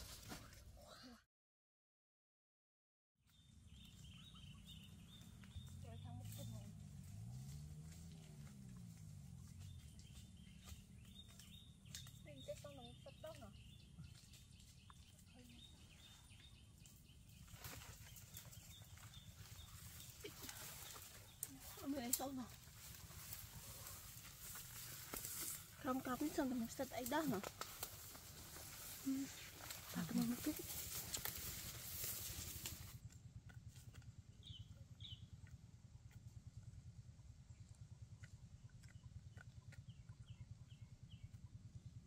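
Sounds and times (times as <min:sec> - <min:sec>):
footsteps in undergrowth: 0:00.0 - 0:00.7, 0:03.7 - 0:33.1
low rumble: 0:03.4 - 0:42.0
leaves and branches rustling: 0:03.7 - 0:33.0.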